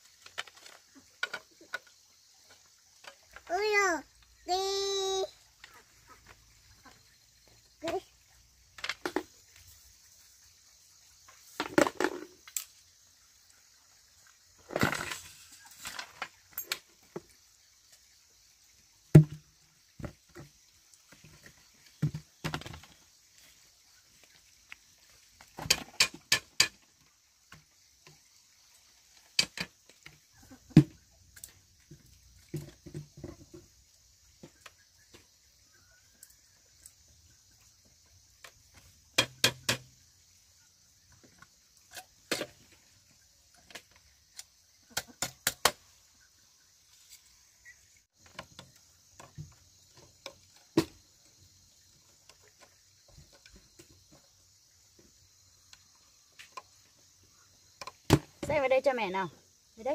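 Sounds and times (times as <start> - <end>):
knife cutting and tapping bamboo: 39.2 - 39.9, 43.7 - 45.9.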